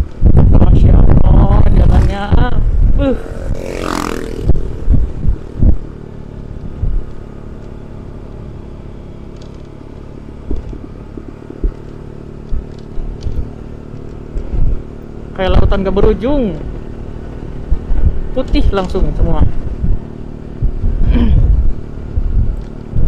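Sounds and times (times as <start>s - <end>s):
low thumps: 0.0s - 7.4s, 10.4s - 14.9s, 19.3s - 23.0s
scooter engine running: 1.3s - 23.0s.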